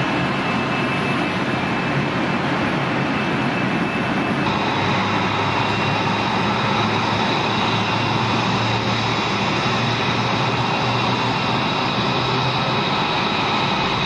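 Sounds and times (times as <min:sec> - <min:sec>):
jet engine rushing: 0:00.0 - 0:14.0
high whine: 0:03.6 - 0:14.0.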